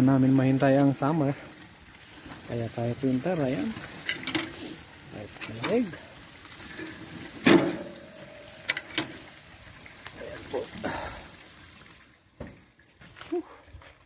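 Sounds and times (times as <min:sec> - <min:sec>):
grill lid thud: 0:07.4 - 0:08.1.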